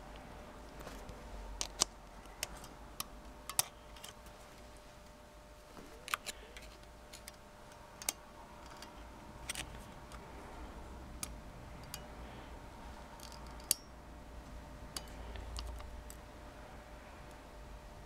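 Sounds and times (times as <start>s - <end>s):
faint steady hum: 0.0s - 18.0s
small metallic spring clicks: 1.6s - 4.2s, 6.2s - 9.7s, 11.2s - 12.1s, 13.2s - 14.0s, 14.9s - 16.2s.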